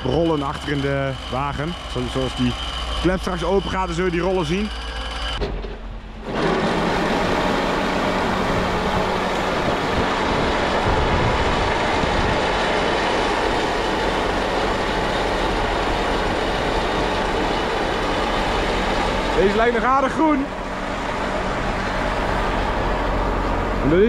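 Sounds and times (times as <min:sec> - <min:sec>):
discharge rollers turning: 0:00.0 - 0:05.5
tractor engine: 0:00.0 - 0:24.0.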